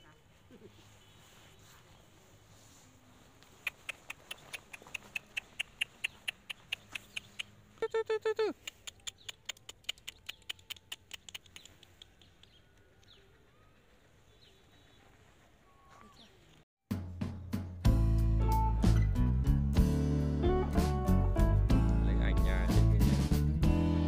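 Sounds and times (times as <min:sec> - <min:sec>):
high squeaky animal chirps: 0:03.7 - 0:12.4.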